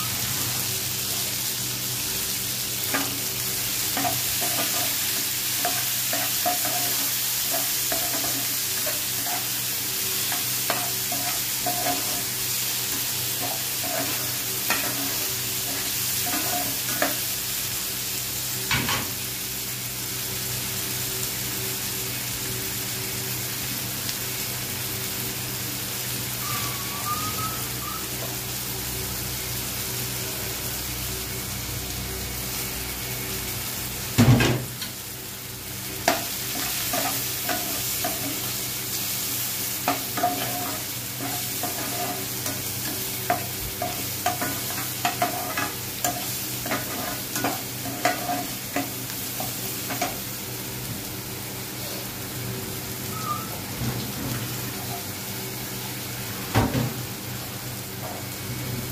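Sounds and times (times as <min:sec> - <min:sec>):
vegetables sizzling in hot oil: 0:00.0 - 0:58.9
metal spatula scraping a pan: 0:39.9 - 0:48.9.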